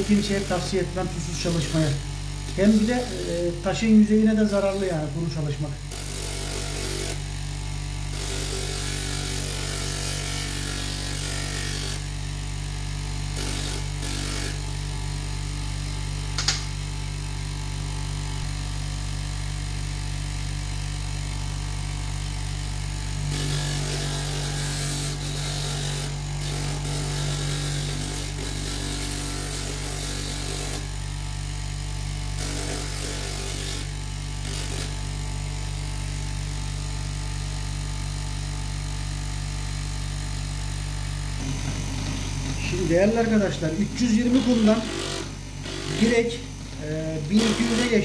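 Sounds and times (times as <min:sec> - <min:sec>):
bench grinder motor humming: 0:00.0 - 0:48.0
sharp click: 0:16.4 - 0:16.8
stone grinding on sanding pad: 0:23.3 - 0:30.8, 0:41.4 - 0:48.0.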